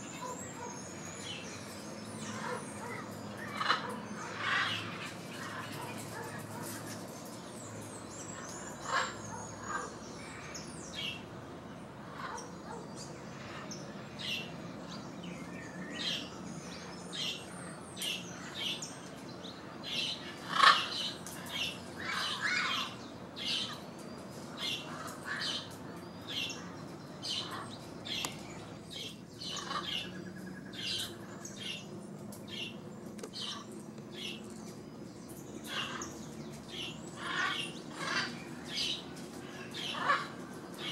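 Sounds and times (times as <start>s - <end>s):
parrots squawking: 2.2s - 6.7s, 8.8s - 10.0s, 19.9s - 23.8s, 24.6s - 28.2s, 28.9s - 30.2s, 35.6s - 40.9s.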